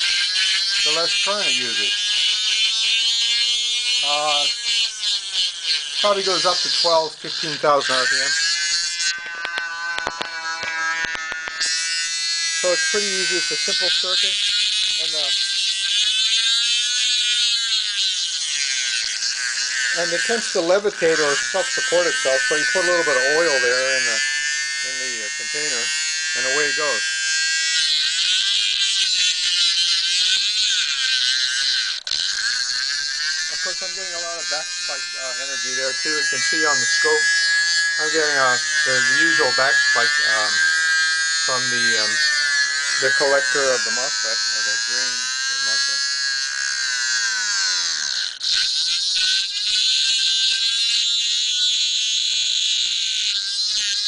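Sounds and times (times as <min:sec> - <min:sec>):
motor high wavering whine: 0:00.0 - 0:54.0
rattling buzz: 0:00.0 - 0:54.0.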